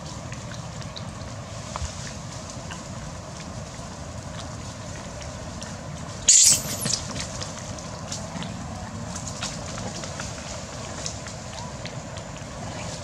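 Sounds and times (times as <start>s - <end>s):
monkey cry: 6.3s - 7.0s
monkey screaming: 6.3s - 7.0s.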